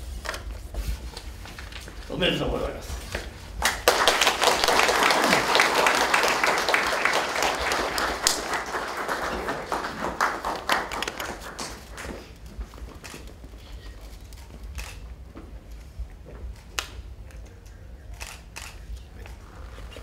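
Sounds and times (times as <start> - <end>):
audience applause: 3.6 - 12.5.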